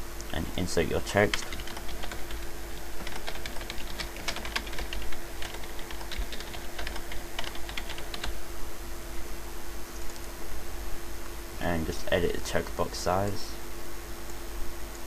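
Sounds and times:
steady low hum: 0:00.0 - 0:15.0
keyboard typing: 0:01.2 - 0:08.3.

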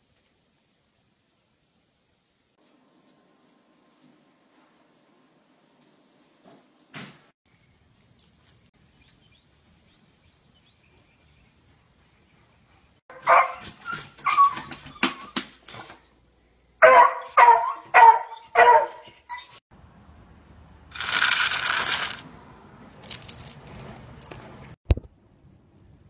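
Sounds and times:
dog barking: 0:13.1 - 0:13.8, 0:16.8 - 0:19.4.

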